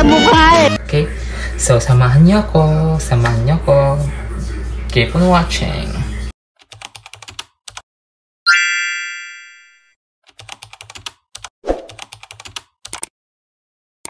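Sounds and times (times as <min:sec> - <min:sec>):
keyboard typing clicks: 0:10.3 - 0:13.1.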